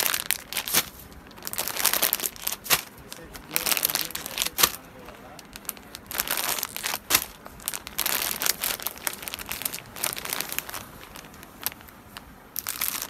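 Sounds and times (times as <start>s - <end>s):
plastic packets crinkling: 0.0s - 13.0s.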